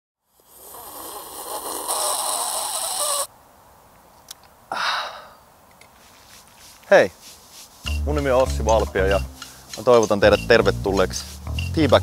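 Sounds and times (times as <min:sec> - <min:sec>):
slurping sip: 0:00.4 - 0:03.3.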